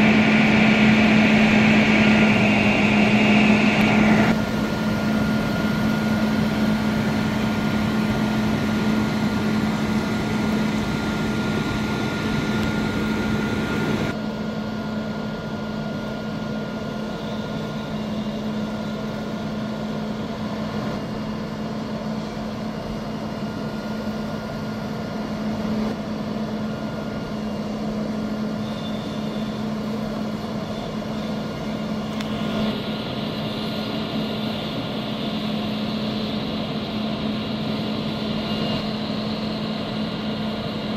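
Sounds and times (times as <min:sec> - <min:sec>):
diesel engine running: 0:00.0 - 0:14.2.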